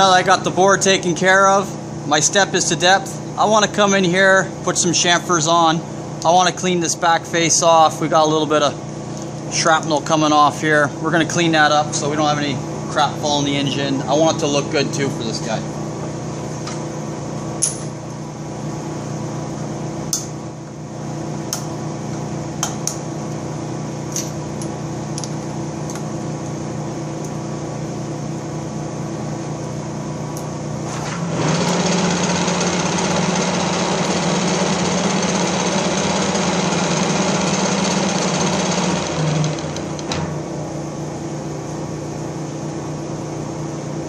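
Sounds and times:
boring machine humming: 0:00.0 - 0:44.0.

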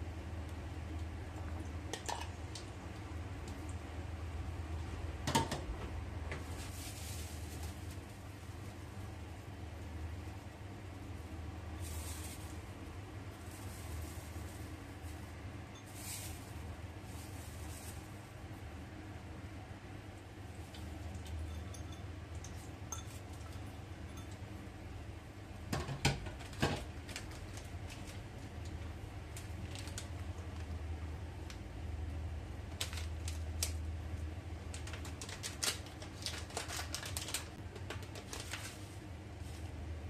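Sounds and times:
packet crinkling and clicks: 0:34.7 - 0:38.8.

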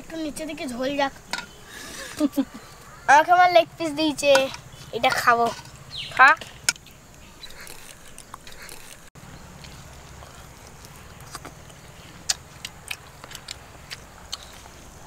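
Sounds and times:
faint low background hum: 0:00.0 - 0:15.0
person chewing meat: 0:07.4 - 0:15.0
mouth smacks and clicks: 0:10.2 - 0:14.7.

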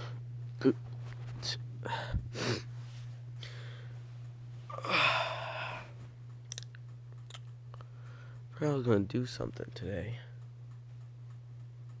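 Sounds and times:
steady low hum: 0:00.0 - 0:12.0
person breathing out: 0:04.7 - 0:06.0.

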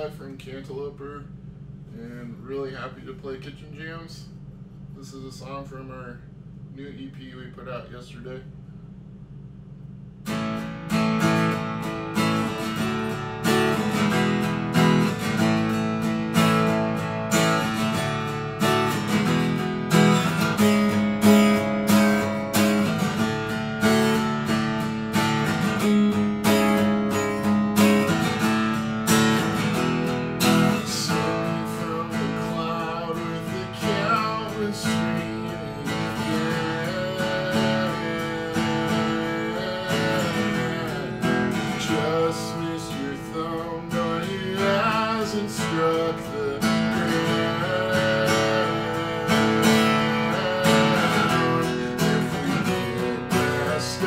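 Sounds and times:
acoustic guitar strumming chords: 0:10.2 - 0:54.0
man singing: 0:30.6 - 0:54.0.

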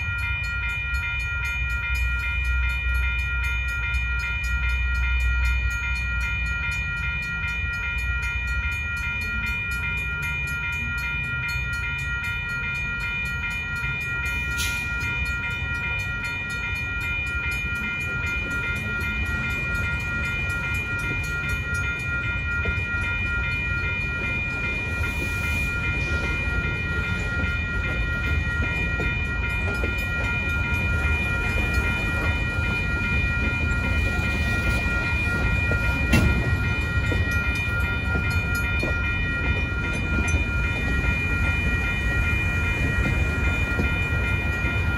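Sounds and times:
railroad crossing bell ringing: 0:00.0 - 0:44.9
freight cars rumbling: 0:09.0 - 0:44.9.

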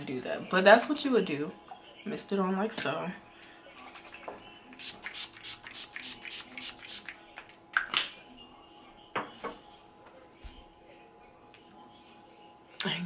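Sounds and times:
spray bottle hissing: 0:04.8 - 0:07.1.

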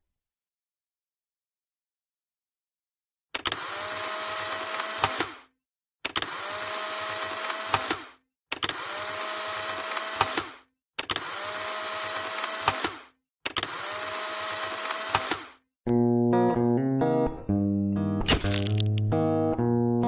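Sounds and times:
camera motor whirring: 0:03.4 - 0:05.5, 0:06.1 - 0:15.6
guitar music: 0:15.9 - 0:20.0.

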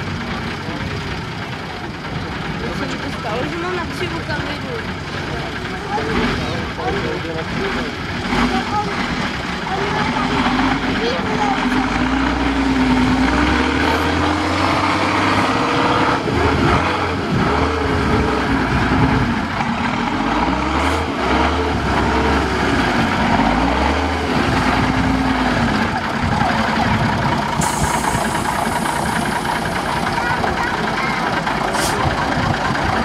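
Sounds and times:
truck engine revving under load: 0:00.0 - 0:33.0.

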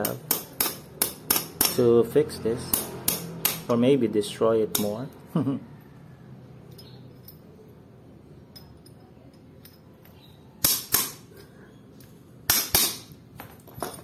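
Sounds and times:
pliers striking metal: 0:00.0 - 0:01.9, 0:02.7 - 0:03.8
faint metal clinks: 0:06.6 - 0:07.7, 0:08.4 - 0:10.4.

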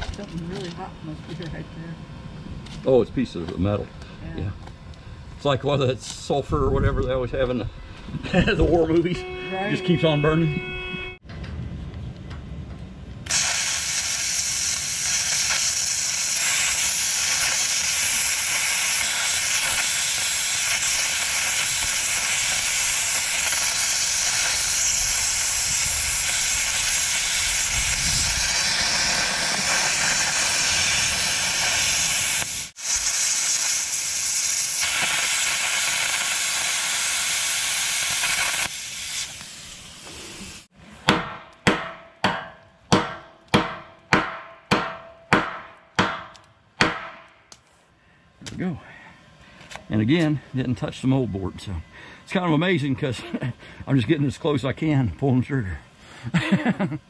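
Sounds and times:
plasma cutter hissing: 0:13.3 - 0:40.7
sharp knocks: 0:41.1 - 0:47.4.

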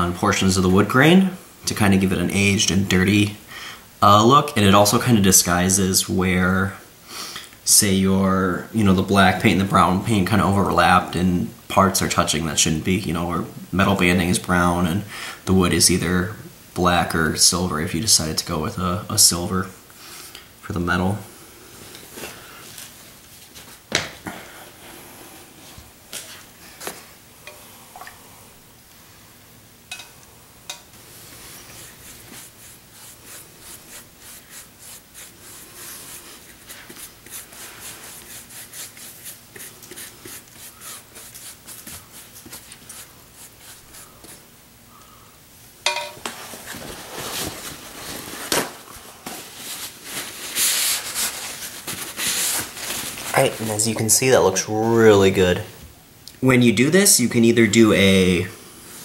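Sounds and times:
paintbrush strokes: 0:31.1 - 0:44.5
rag rubbing surface: 0:31.2 - 0:44.4.

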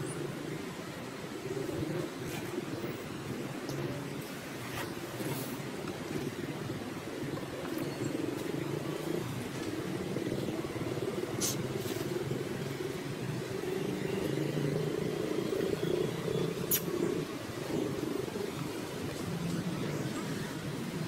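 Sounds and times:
short sharp clicks: 0:16.7 - 0:16.9.

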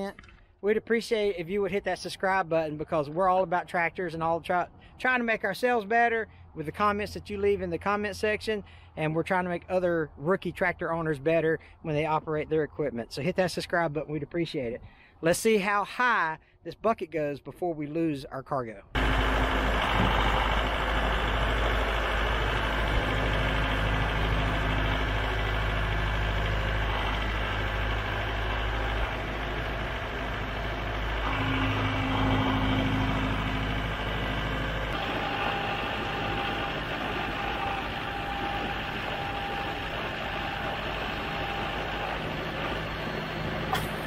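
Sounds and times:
thin steady whine: 0:19.0 - 0:44.0
tractor diesel engine running: 0:19.0 - 0:44.0.

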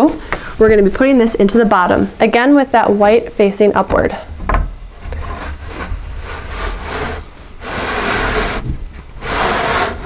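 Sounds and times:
wooden panel scraping in grooves: 0:05.0 - 0:10.0.

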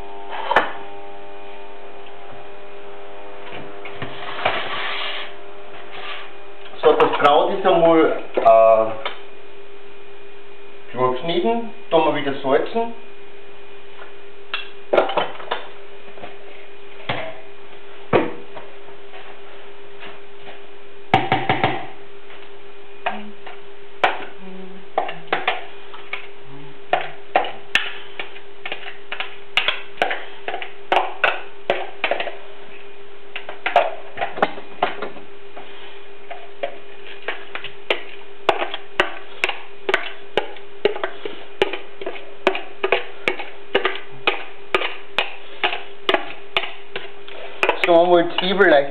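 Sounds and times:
steady hum: 0:00.0 - 0:48.9
ingredients scraped into pot: 0:04.0 - 0:06.4.

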